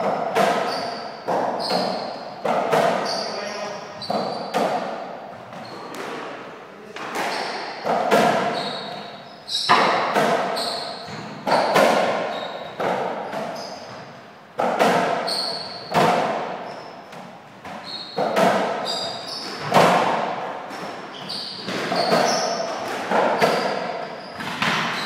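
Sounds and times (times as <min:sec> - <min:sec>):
ball hitting racquets and walls: 0:00.0 - 0:25.0
short high squeaks: 0:00.6 - 0:02.3, 0:03.0 - 0:04.6, 0:08.5 - 0:09.9, 0:10.5 - 0:11.3, 0:12.2 - 0:14.0, 0:15.2 - 0:16.0, 0:17.8 - 0:19.6, 0:21.1 - 0:22.7.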